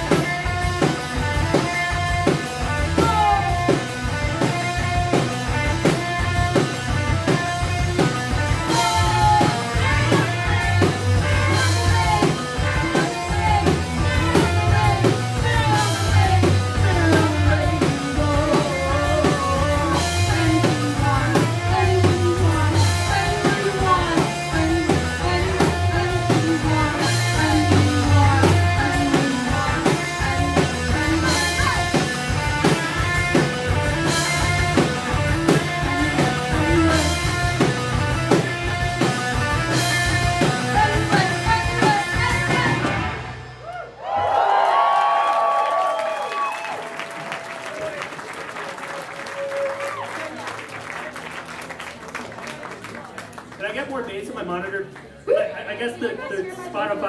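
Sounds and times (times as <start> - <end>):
drum kit beat: 0.0 - 43.5
electric guitar: 0.0 - 43.8
bass guitar: 0.0 - 46.6.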